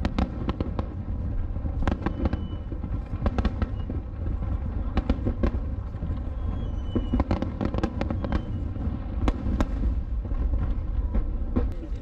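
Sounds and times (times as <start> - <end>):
fireworks bangs and crackles: 0.0 - 12.0
low rumble: 0.0 - 12.0
faint high whistles: 2.0 - 2.8, 3.6 - 4.0, 6.3 - 7.3, 8.0 - 8.8.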